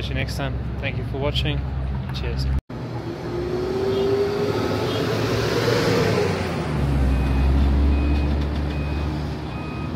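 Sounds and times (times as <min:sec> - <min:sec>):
vehicle passing: 0:02.7 - 0:08.1
heavy vehicle engine rumble: 0:06.4 - 0:09.9
reversing alarm beeping: 0:07.1 - 0:09.9.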